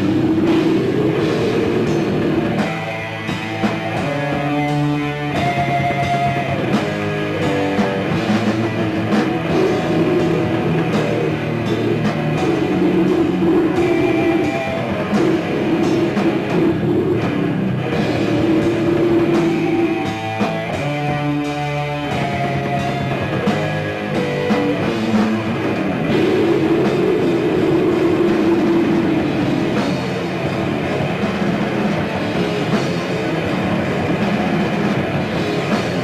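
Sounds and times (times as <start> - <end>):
metal band playing live: 0.0 - 36.0.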